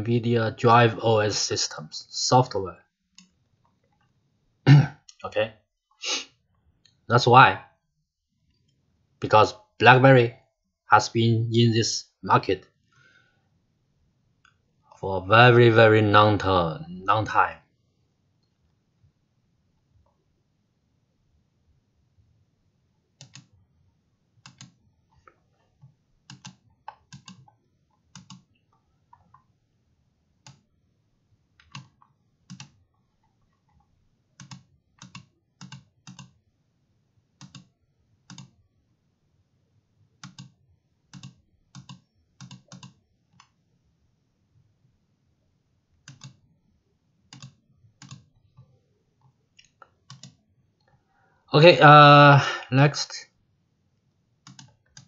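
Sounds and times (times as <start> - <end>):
computer mouse clicking: 23.2 - 23.5, 24.4 - 29.5, 30.4 - 30.7, 31.6 - 36.4, 37.4 - 37.7, 38.3 - 38.6, 40.2 - 43.6, 46.0 - 46.4, 47.3 - 51.0, 54.4 - 55.0.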